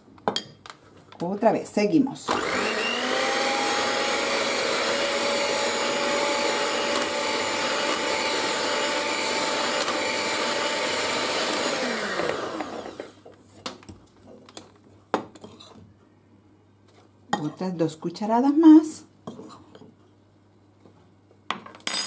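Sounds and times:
electric hand mixer whipping cream: 2.3 - 13.2.

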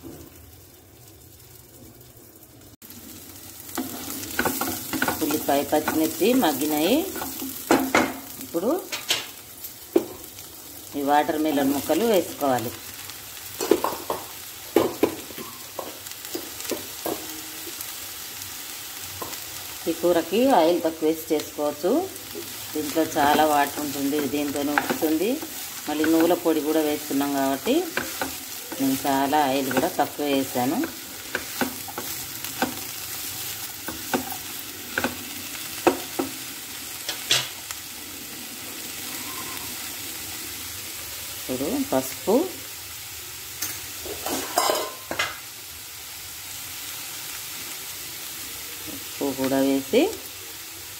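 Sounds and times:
oil sizzling in a pan: 0.0 - 50.9
utensils clinking against pan: 43.6 - 45.4.

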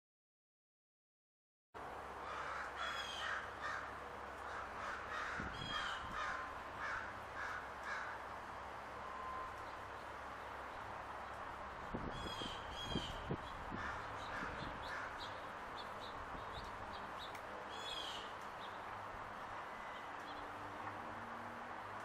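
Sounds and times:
outdoor background hiss: 1.8 - 22.0
bird calling harshly: 12.1 - 15.3.

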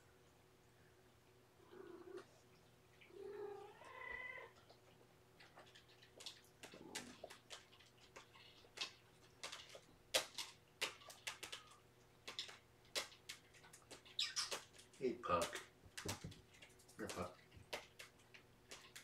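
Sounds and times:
cat meow: 3.1 - 4.6
light clicks and rustles: 4.5 - 19.0.

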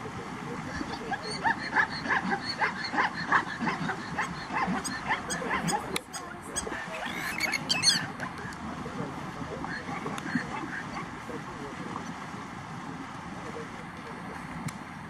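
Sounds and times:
zebras barking: 0.5 - 8.6, 9.4 - 11.5.

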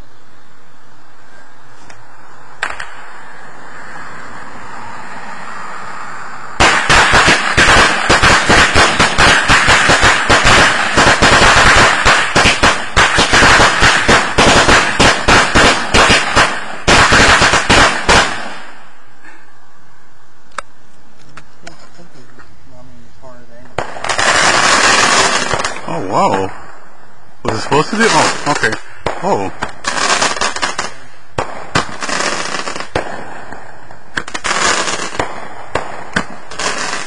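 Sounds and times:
firecrackers cracking: 1.7 - 4.8, 6.6 - 19.1, 23.6 - 37.0.

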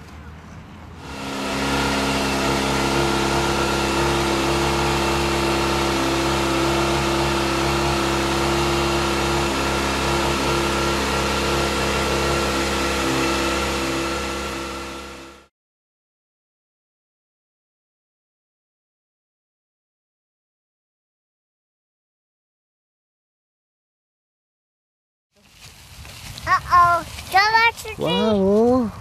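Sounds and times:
motorcycle engine running: 1.0 - 15.5.

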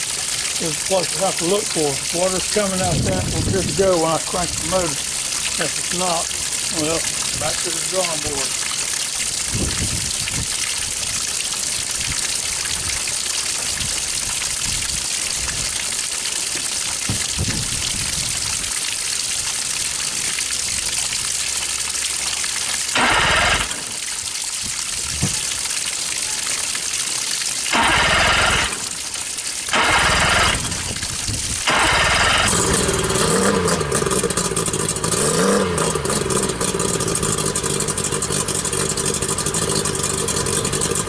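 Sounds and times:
outboard engine cranking: 0.0 - 10.5, 22.6 - 24.1, 27.7 - 41.0
water rushing from a hose: 0.0 - 41.0.

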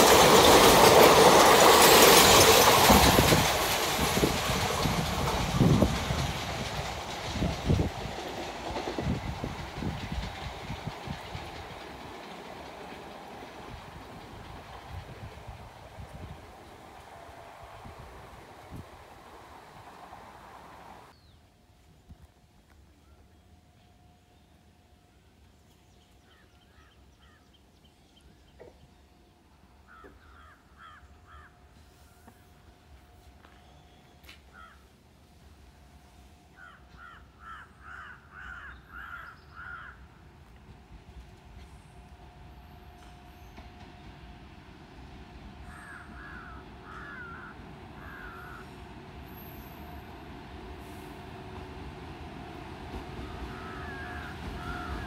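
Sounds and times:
crow cawing: 36.6 - 40.0, 45.7 - 48.7, 53.5 - 55.0.

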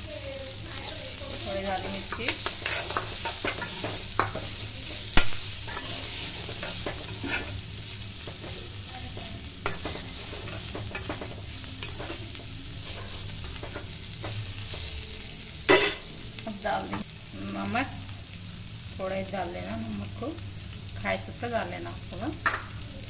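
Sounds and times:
vegetables sizzling in oil: 0.0 - 23.0
spatula stirring and scraping pan: 0.5 - 15.0.

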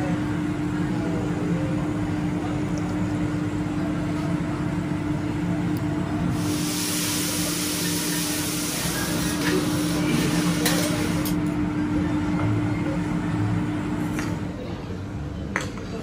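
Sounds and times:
mechanical hum: 0.0 - 16.0
hiss from hot griddle: 6.4 - 11.2.

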